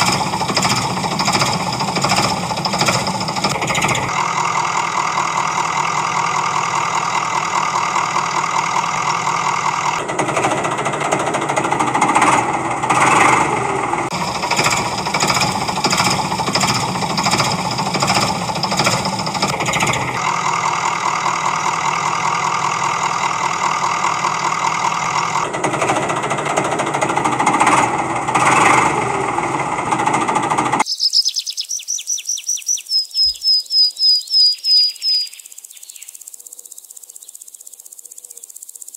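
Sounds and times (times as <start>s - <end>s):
diesel engine chugging: 0.0s - 30.9s
insect chirping: 30.8s - 38.9s.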